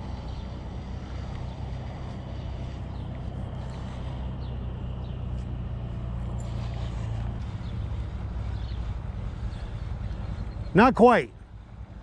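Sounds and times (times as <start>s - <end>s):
vehicle engine humming: 0.0s - 12.0s.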